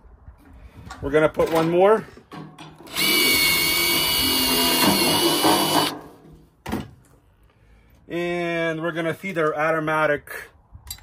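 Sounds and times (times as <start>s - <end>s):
cordless drill motor whining: 2.9s - 5.9s.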